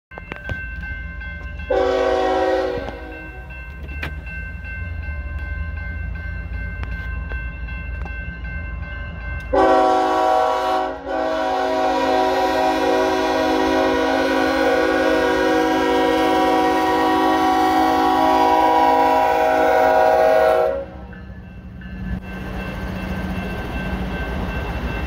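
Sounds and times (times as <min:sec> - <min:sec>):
crossing bell ringing: 0:00.1 - 0:25.0
locomotive air horn: 0:01.7 - 0:03.3, 0:09.5 - 0:21.1.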